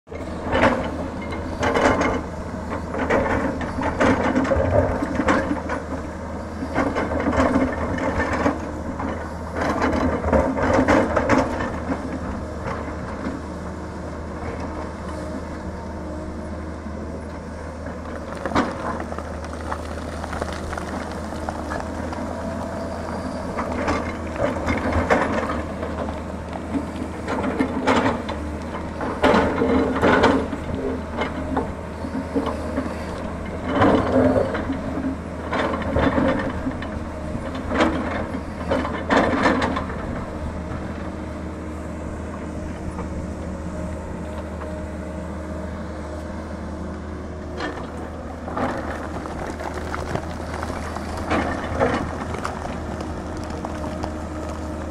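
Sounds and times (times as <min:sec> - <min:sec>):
excavator diesel engine running: 0:00.1 - 0:54.9
bucket scraping earth and rock: 0:47.6 - 0:54.9.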